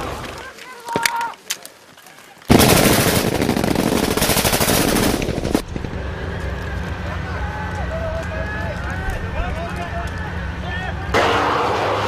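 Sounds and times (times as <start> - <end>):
machine-gun fire: 2.5 - 6.4
diesel engine running: 3.5 - 12.0.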